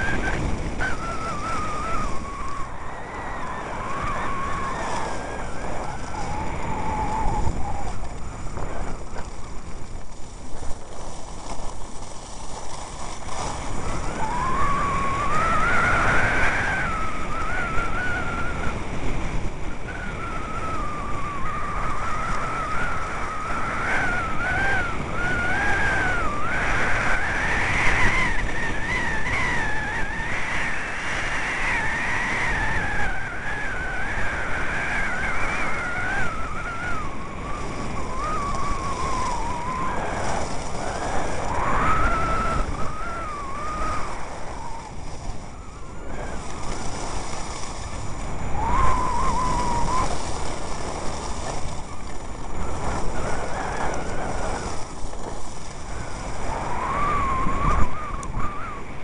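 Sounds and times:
thin wavering whistle: 0.0 - 9.2, 13.6 - 59.0
skis scraping on snow: 0.0 - 59.0
wind on microphone: 0.0 - 59.0.

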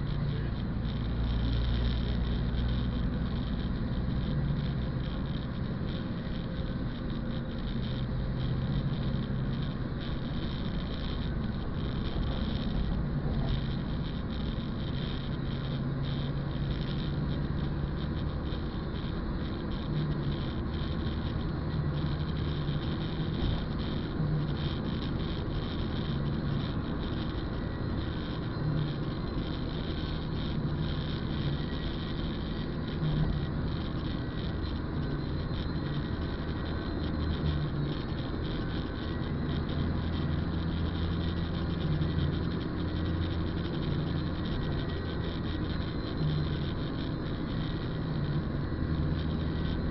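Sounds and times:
car engine hum: 0.0 - 49.9.

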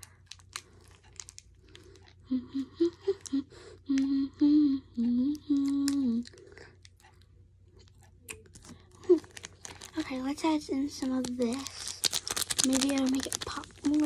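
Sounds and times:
plastic packet crinkling: 0.0 - 2.2, 7.8 - 14.0
girl humming: 2.2 - 6.3.

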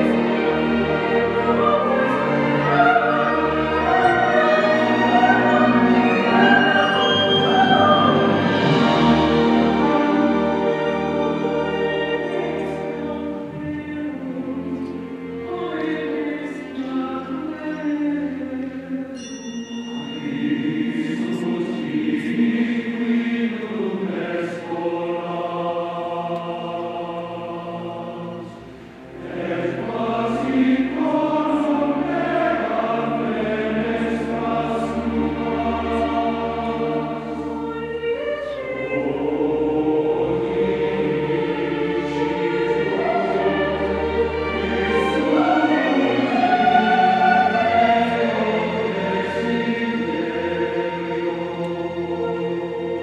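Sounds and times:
choir and orchestra singing chords: 0.0 - 53.0.

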